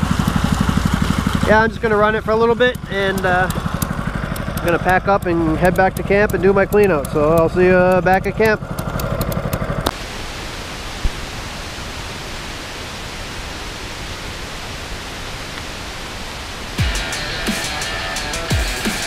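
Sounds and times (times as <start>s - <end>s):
small engine running: 0.0s - 10.0s, 16.8s - 19.0s
music with deep bass thumps: 16.8s - 19.0s.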